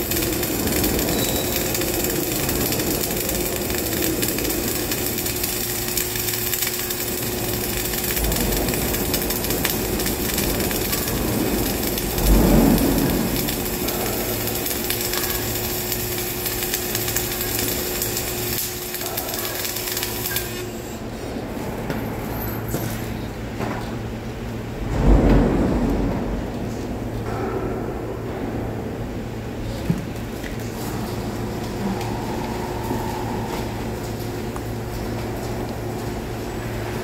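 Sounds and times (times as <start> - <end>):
welding arc crackling: 0.0 - 21.3, 30.0 - 37.0
steady hum: 0.0 - 22.4, 23.1 - 37.0.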